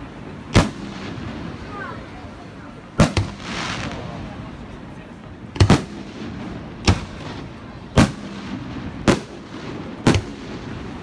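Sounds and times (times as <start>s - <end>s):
fireworks booms: 0.4s - 1.8s, 3.0s - 4.7s, 5.4s - 11.0s.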